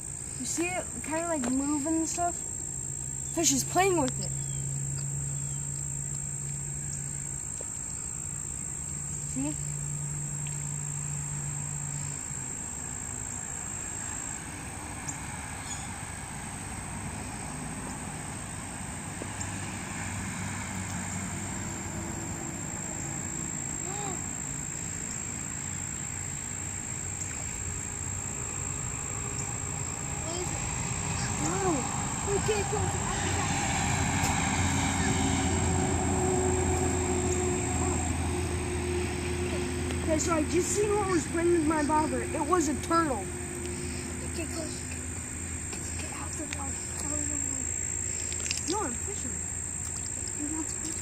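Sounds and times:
distant engine rumble: 0.0s - 51.0s
high insect trill: 0.0s - 51.0s
faint ticks: 9.6s - 10.7s.

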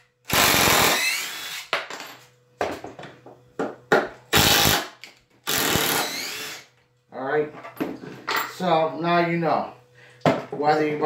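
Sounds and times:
cordless impact driver running: 0.3s - 1.7s, 4.4s - 6.7s.

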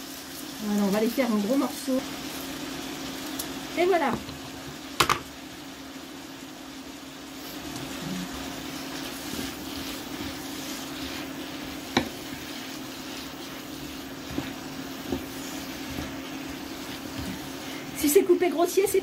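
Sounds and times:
meat and onion sizzling in a wok: 0.0s - 19.0s
wooden spatula stirring: 7.5s - 19.0s
spatula knocking against pan: 11.9s - 12.2s.

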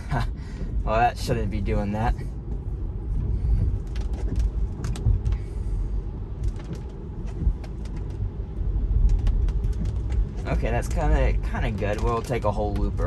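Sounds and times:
tyre and road noise: 0.0s - 13.0s.

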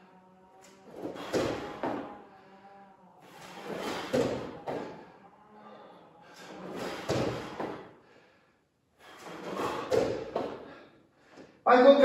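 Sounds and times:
thuds and scuffs on the floor: 6.7s - 7.8s.

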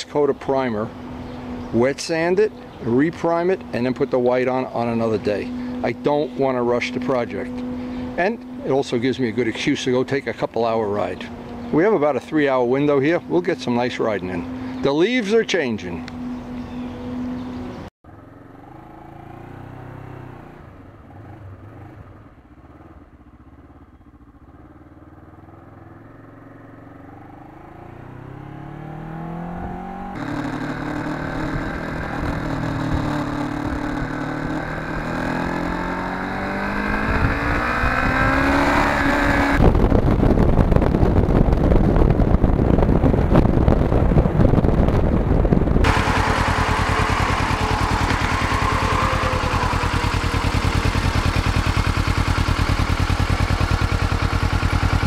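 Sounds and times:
motorcycle engine accelerating: 0.0s - 55.0s
wind rush on microphone: 37.0s - 51.1s.

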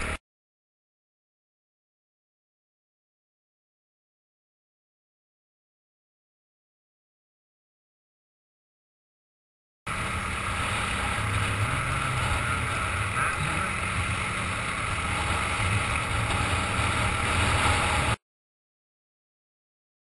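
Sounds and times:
motorcycle engine running: 9.9s - 18.2s.

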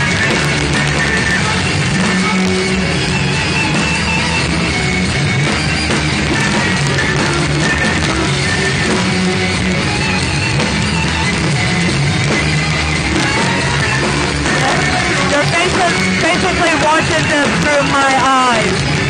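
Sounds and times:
drum kit: 0.0s - 19.0s
electric guitar: 0.0s - 19.0s.

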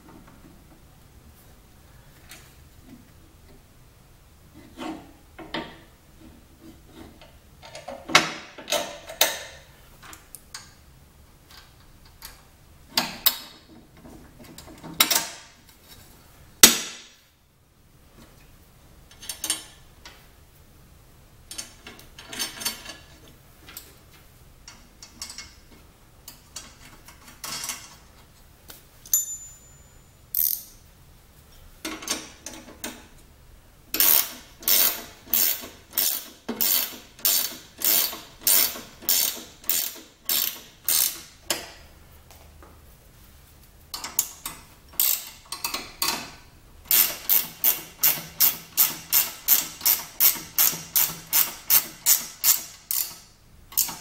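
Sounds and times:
ratchet wrench clicking: 30.3s - 30.8s, 34.0s - 41.3s, 44.2s - 46.1s, 46.9s - 54.0s.

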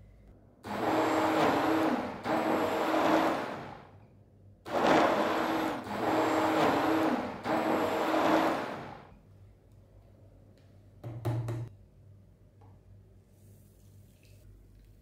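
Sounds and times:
electric blender whirring: 0.7s - 3.9s, 4.7s - 9.1s.

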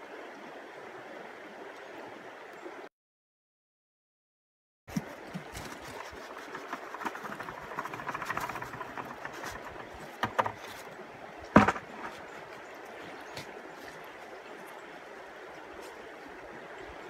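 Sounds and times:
river water rushing: 4.9s - 17.0s
sharp knocks: 7.7s - 10.8s, 11.6s - 12.2s.

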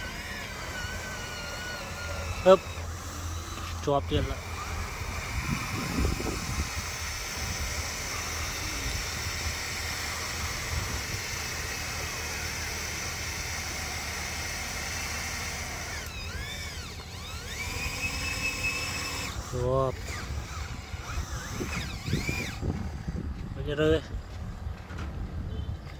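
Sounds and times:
toy hydraulic pump whining: 0.0s - 23.3s.

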